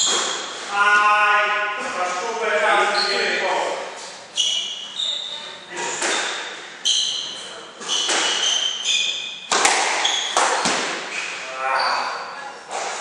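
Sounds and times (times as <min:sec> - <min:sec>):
shoe squeaks on wooden floor: 0:00.0 - 0:00.7, 0:02.8 - 0:03.4, 0:04.0 - 0:13.0
squash ball cracking off rackets: 0:07.9 - 0:08.6, 0:09.5 - 0:11.4.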